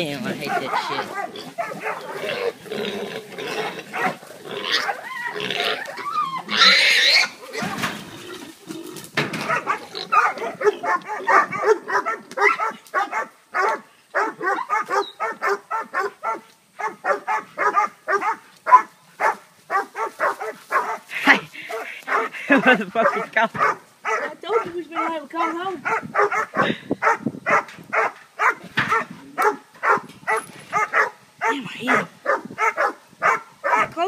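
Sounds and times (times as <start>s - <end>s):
dogs barking rapidly: 0.3s - 2.5s, 3.5s - 7.8s, 9.2s - 34.0s
hog squealing and grunting: 0.3s - 8.6s.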